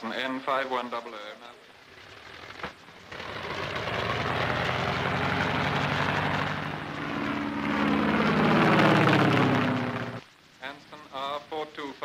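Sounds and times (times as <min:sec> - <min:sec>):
propeller aircraft engines droning: 0:01.8 - 0:10.4.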